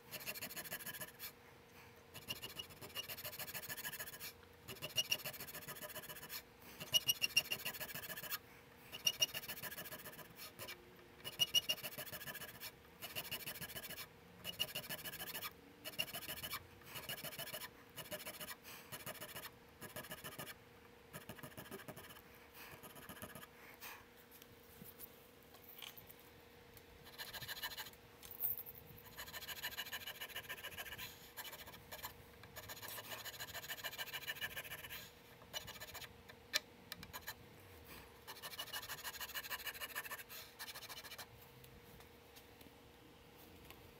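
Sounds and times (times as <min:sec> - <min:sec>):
checkering tool scratchy rasp: 0:00.0 - 0:01.4, 0:02.1 - 0:20.6, 0:21.2 - 0:23.5, 0:27.0 - 0:28.0, 0:29.0 - 0:36.1, 0:38.3 - 0:41.3
sharp ticks of tool: 0:00.1 - 0:01.2, 0:02.2 - 0:20.6.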